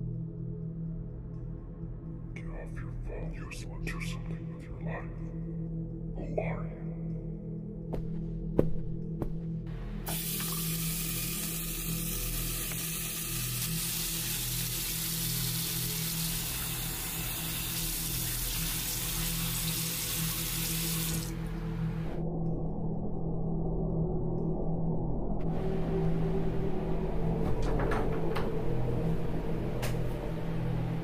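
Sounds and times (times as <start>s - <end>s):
ambient music drone: 0.0s - 31.0s
rushing hiss like running tap: 10.1s - 21.4s.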